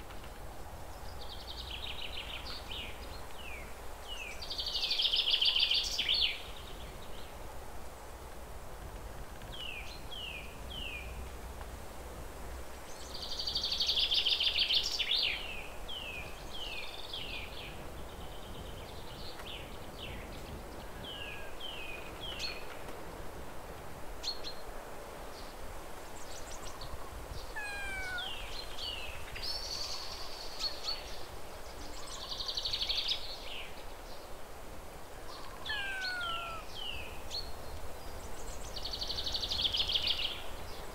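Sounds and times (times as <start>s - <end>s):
bird chirping and trilling: 27.6s - 28.6s, 35.4s - 37.0s.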